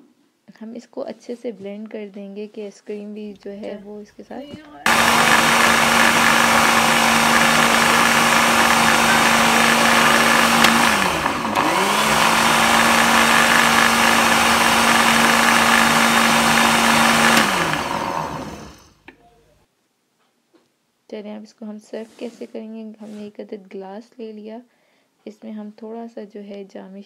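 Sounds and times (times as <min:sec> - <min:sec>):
electric blender motor running: 0:04.9 - 0:19.0.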